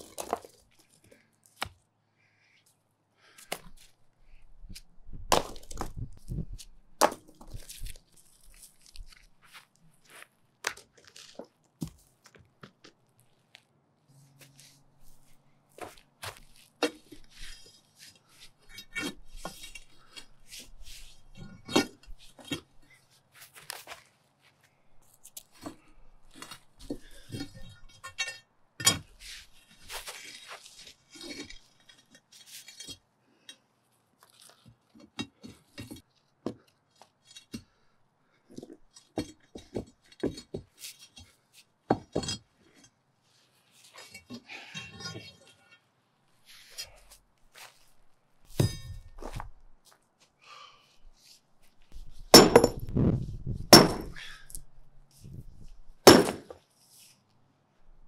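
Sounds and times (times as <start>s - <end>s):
concrete pieces knocking together: 52.3s - 53.0s, 53.6s - 54.3s, 56.0s - 56.6s.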